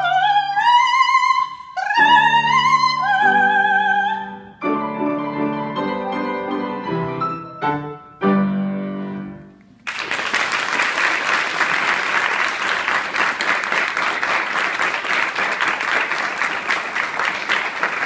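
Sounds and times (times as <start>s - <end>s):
audience applauding: 9.8s - 18.0s.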